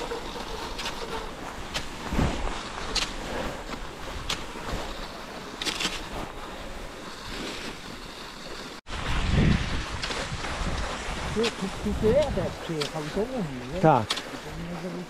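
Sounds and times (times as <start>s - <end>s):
poles crunching snow: 0.0s - 15.0s
skis hissing on snow: 0.0s - 15.0s
wind on microphone: 8.9s - 13.8s.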